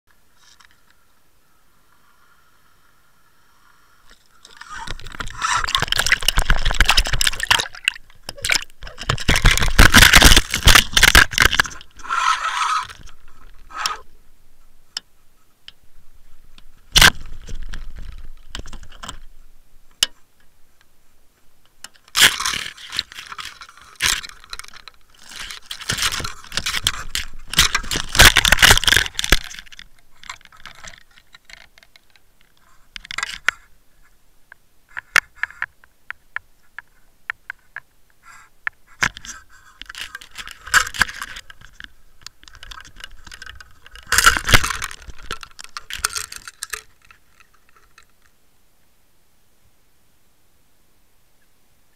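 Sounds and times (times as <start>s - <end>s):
rattling scraping water noise: 3.4s - 15.1s, 16.1s - 19.4s, 21.8s - 33.7s, 39.0s - 48.3s.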